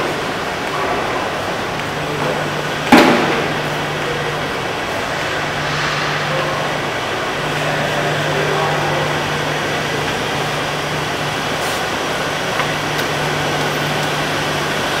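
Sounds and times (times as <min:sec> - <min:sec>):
ventilation fans humming: 0:00.0 - 0:15.0
sharp bang: 0:02.9 - 0:09.1.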